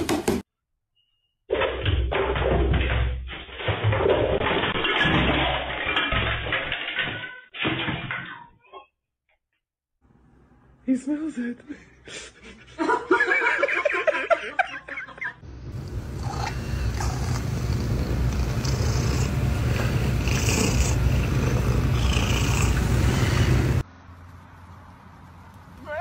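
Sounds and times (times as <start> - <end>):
cat purring: 16.1 - 23.8.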